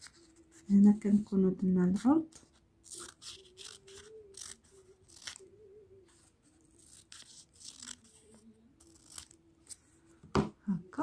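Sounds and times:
scissors cutting paper: 2.0 - 5.5, 6.6 - 9.8.

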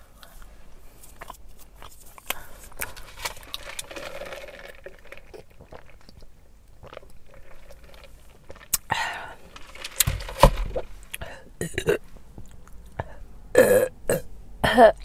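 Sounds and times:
chewing food: 1.1 - 10.1.

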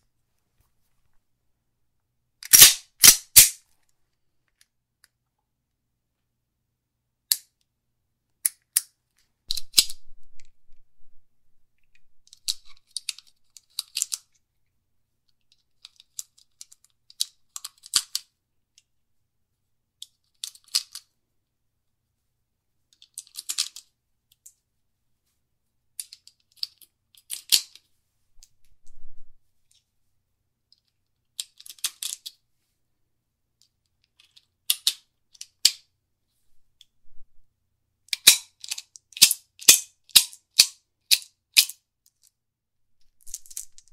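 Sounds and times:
pistol clicks and rattles: 2.4 - 3.6.

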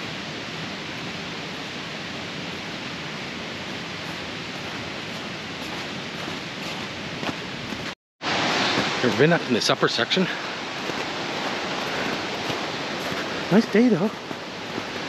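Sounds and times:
waterfall rushing: 0.0 - 15.0
footsteps crunching in snow: 3.6 - 8.0, 8.6 - 15.0.

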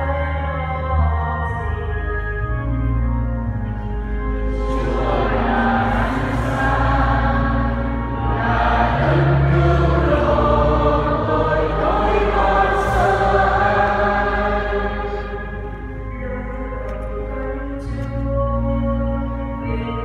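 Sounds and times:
low accompaniment: 0.0 - 20.0
choir singing a hymn: 4.5 - 19.9.

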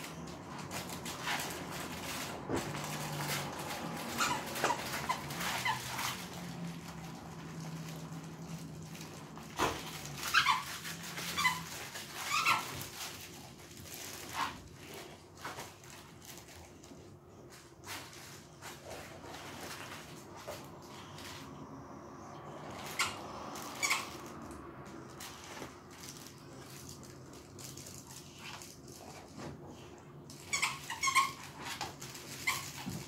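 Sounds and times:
plush toy squeaks: 0.0 - 6.8, 9.6 - 14.6, 22.7 - 24.4, 30.3 - 33.0.

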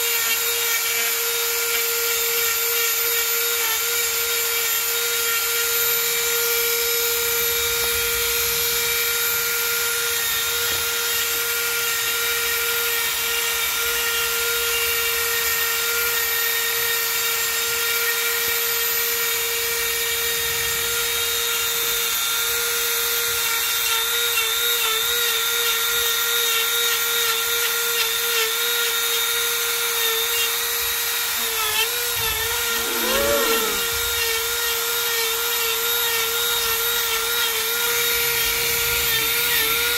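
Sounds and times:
rotary tool grinding wood: 0.0 - 7.4, 8.4 - 39.9.

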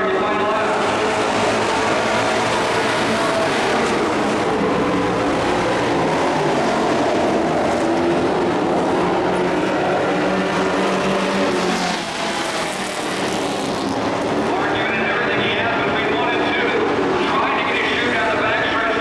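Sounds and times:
race truck engines droning: 0.0 - 19.0.

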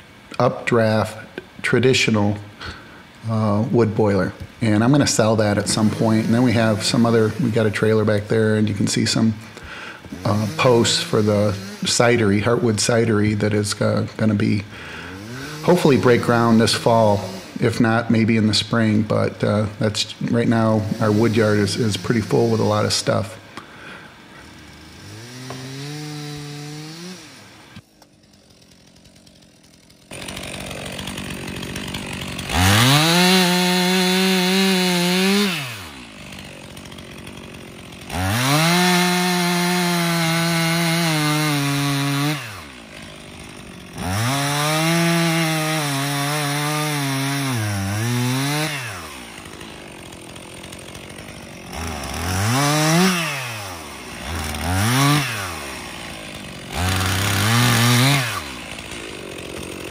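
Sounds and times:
chainsaw cutting a log: 0.0 - 59.9.

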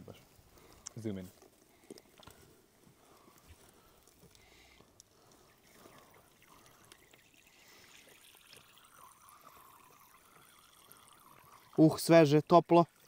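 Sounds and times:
milk squirting into a teacup: 6.0 - 13.0.

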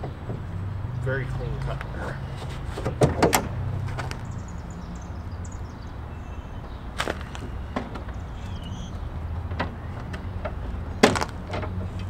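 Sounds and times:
low outdoor rumble: 0.0 - 12.0
car hood latch clicking: 2.8 - 3.5.

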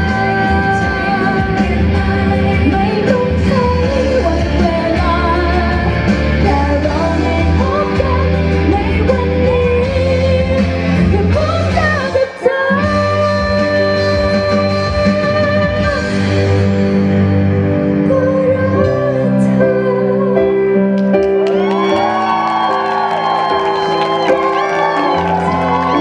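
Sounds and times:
woman singing into microphone: 0.0 - 16.6, 17.9 - 20.9
amplified instrumental accompaniment: 0.0 - 26.0.

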